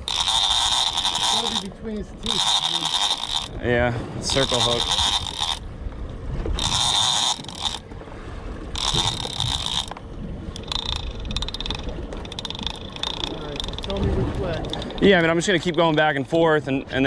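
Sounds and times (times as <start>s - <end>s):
rapid reel clicking: 0.0s - 3.6s, 4.3s - 5.6s, 6.6s - 7.8s, 8.8s - 10.0s, 10.6s - 16.0s
fishing reel noise: 0.0s - 5.7s, 6.5s - 7.9s, 8.7s - 16.4s.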